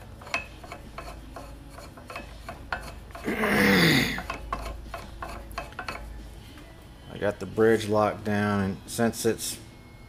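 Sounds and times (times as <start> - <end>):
metal clicks and rubbing: 0.0 - 3.3, 4.2 - 6.2.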